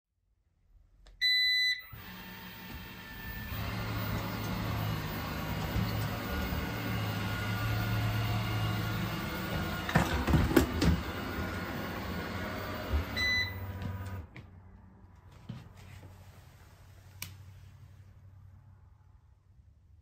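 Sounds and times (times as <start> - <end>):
robot vacuum motor hum: 2.0 - 14.2.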